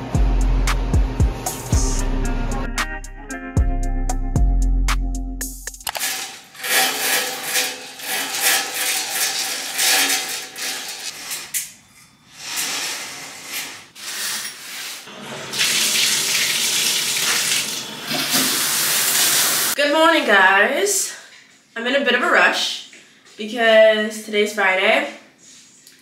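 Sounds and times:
tap water running into bathtub: 5.9s - 11.6s, 15.1s - 19.8s.

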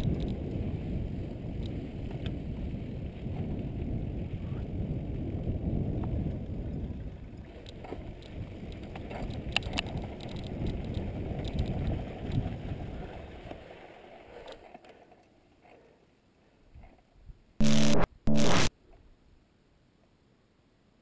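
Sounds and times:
bike clicks and rattles: 0.0s - 0.5s, 7.4s - 12.5s
wind on microphone: 0.0s - 13.2s
bike tyres on dirt: 0.0s - 15.9s.

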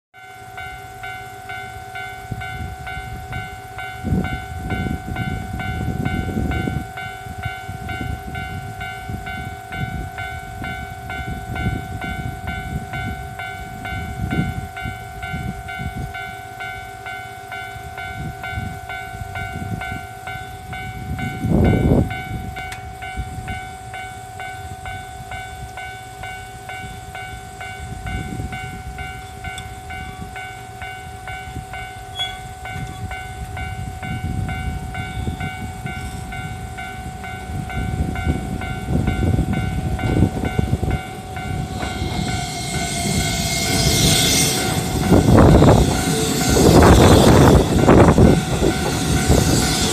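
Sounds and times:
level crossing warning bell: 0.2s - 49.9s
train approaching: 0.2s - 49.9s
low rumbling: 37.6s - 49.9s.

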